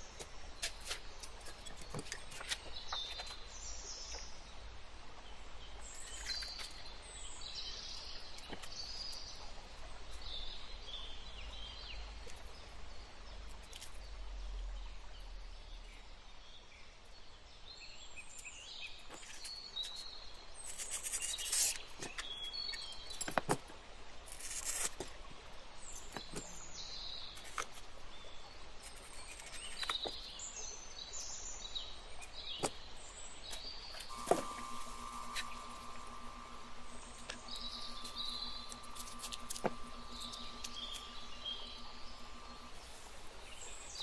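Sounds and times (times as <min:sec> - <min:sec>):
steady hum: 0:33.9 - 0:44.0.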